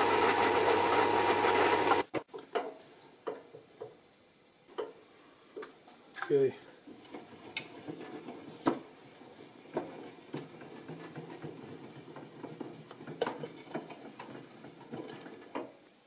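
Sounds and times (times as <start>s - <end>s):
drill press humming: 0.0s - 2.1s.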